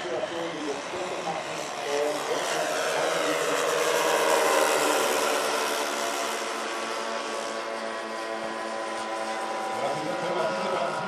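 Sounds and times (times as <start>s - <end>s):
model airplane engines droning: 0.0s - 11.0s.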